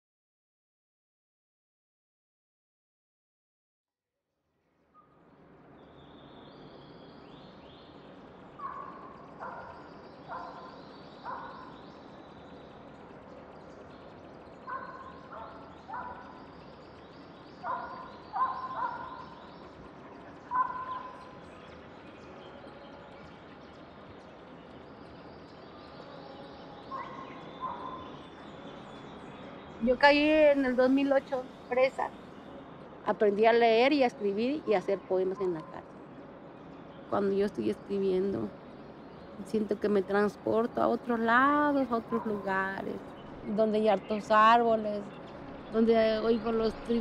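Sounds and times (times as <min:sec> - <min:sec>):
thin high bird chirps: 0:05.8 - 0:32.7.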